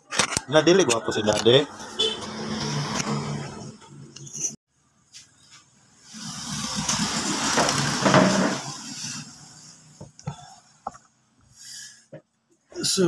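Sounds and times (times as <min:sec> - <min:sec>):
vehicle passing by: 0:00.6 - 0:04.2.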